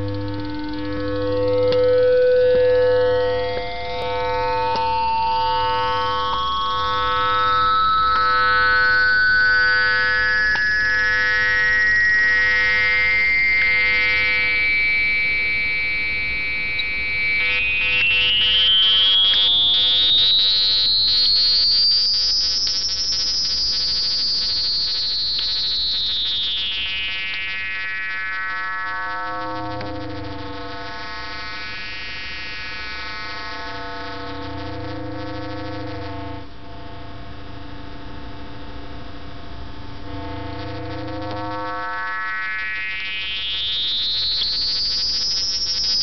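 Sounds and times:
synth tone with gliding overtone: 7.0 - 21.0.

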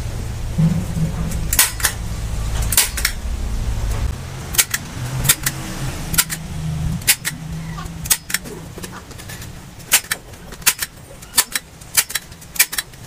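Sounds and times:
low steady hum: 0.0 - 13.0
staple gun snapping: 1.5 - 2.0, 2.7 - 3.2, 4.5 - 6.4, 7.0 - 7.4, 9.9 - 13.0.

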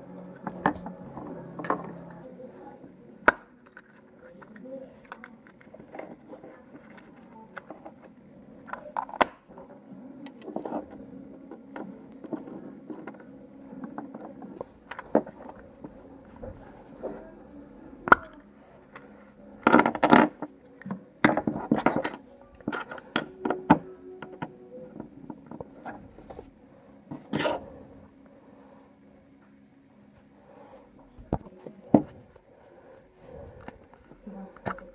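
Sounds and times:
plastic parts rattling: 21.2 - 26.5.

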